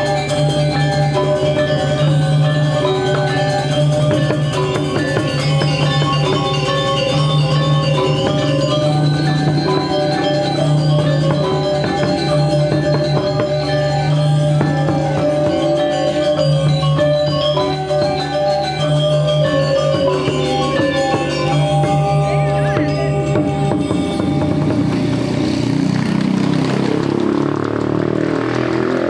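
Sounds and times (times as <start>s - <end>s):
metallophones ringing: 0.0s - 27.5s
hand drum strokes: 0.0s - 29.0s.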